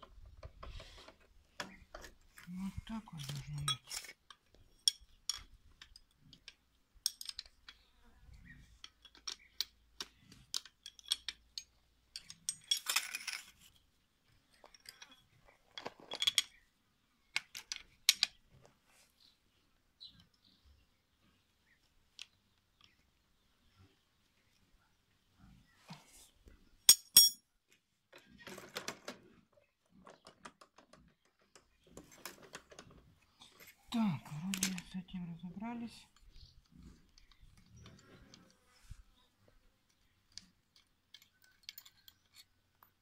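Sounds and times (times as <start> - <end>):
hand tool clinking on metal: 3.1 - 7.8, 10.5 - 13.5, 26.9 - 27.4.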